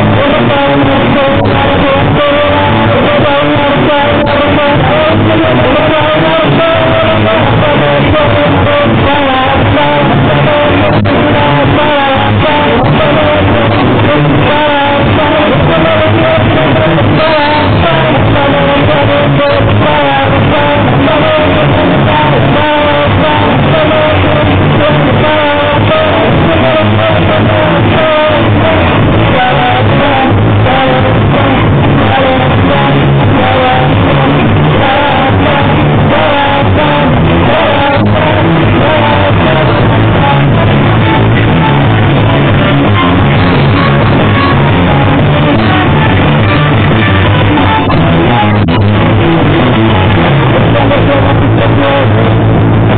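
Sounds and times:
electric guitars: 0.0 - 52.9
person singing: 0.0 - 52.9.

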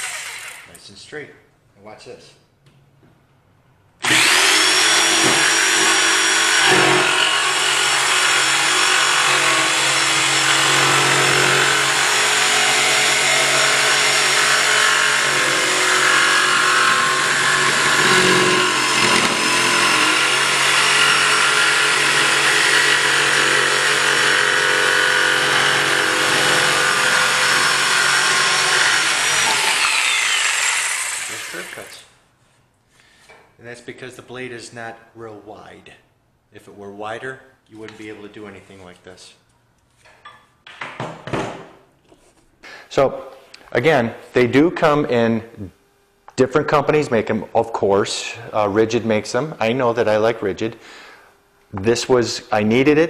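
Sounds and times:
jigsaw motor whine: 0.0 - 0.7, 4.0 - 31.9
saw blade cutting wood: 4.0 - 32.0.

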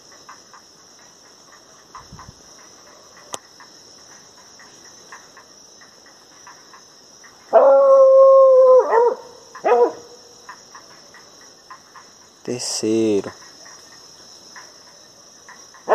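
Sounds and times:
night insects chirring: 0.0 - 15.9
hound baying: 7.5 - 10.2.

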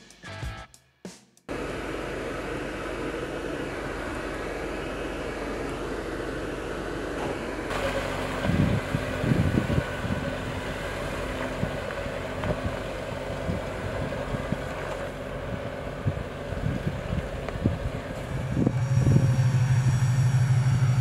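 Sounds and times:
vehicle drivetrain hum: 1.5 - 21.0
wind buffeting microphone: 8.2 - 21.0.

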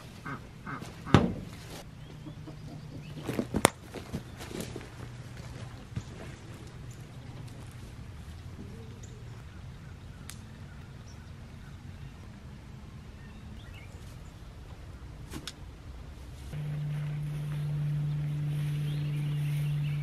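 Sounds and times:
rural outdoor background noise: 0.0 - 20.0
faint bird chirps: 16.6 - 20.0.

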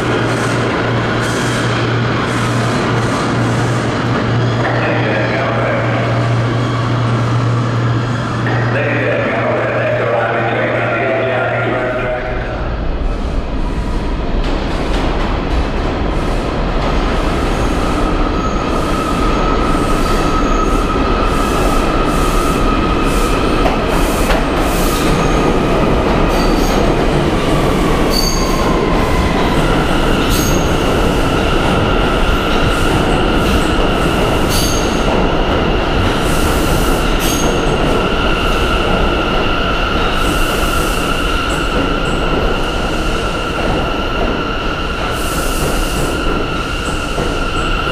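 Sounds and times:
train wheels rumbling on rail: 0.0 - 47.9.

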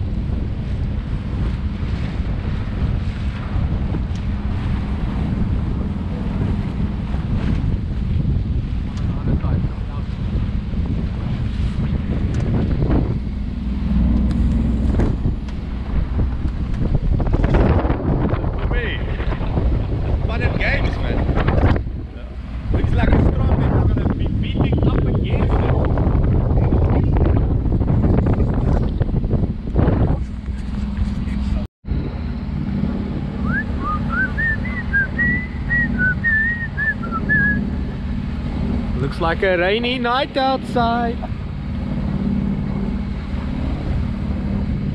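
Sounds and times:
low steady drone: 0.0 - 44.9
water splashing against hull: 0.0 - 44.9
wind buffeting microphone: 0.0 - 44.9
person whistling a tune: 33.4 - 37.6.

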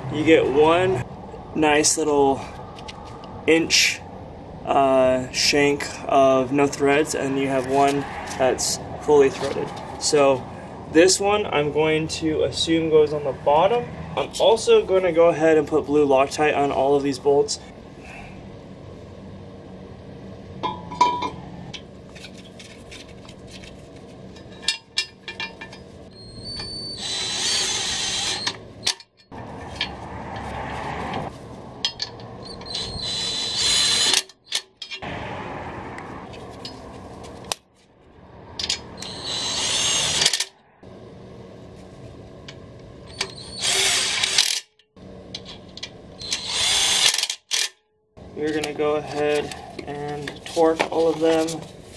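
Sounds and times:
cordless drill whine: 26.1 - 28.6, 32.4 - 34.2, 39.0 - 40.4, 43.1 - 44.6, 46.2 - 47.2.

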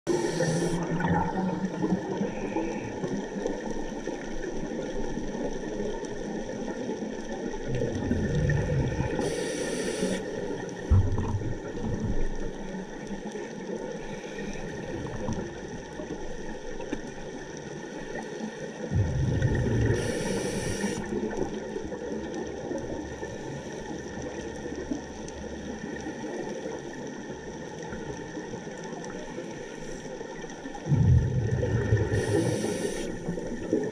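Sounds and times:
scuba regulator breathing: 0.1 - 0.9, 8.4 - 10.4, 19.0 - 21.1, 31.8 - 33.6
faint steady hiss: 0.1 - 1.0, 8.5 - 10.9, 12.3 - 30.9, 31.8 - 33.9.

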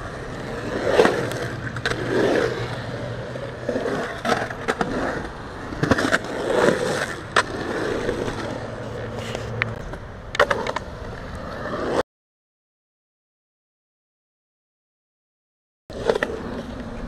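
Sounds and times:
skateboard wheels rolling on concrete: 0.0 - 12.0, 15.9 - 17.0
skateboard clacks: 0.1 - 11.6.

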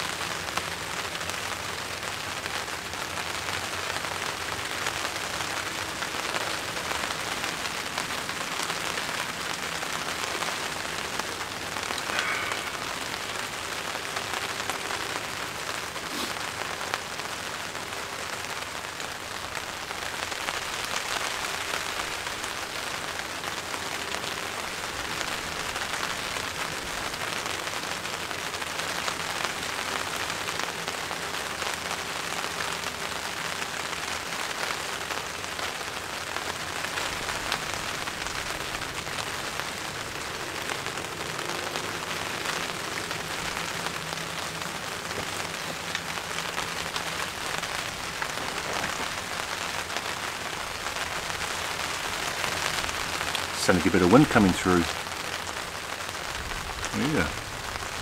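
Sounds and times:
rain on a plastic tarp: 0.0 - 58.0.

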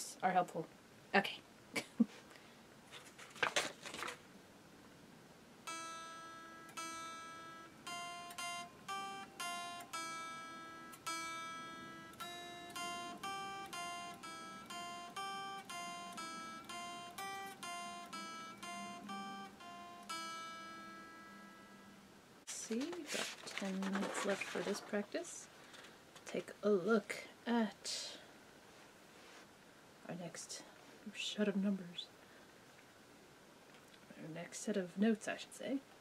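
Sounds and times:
electric guitar single notes: 5.7 - 22.1.

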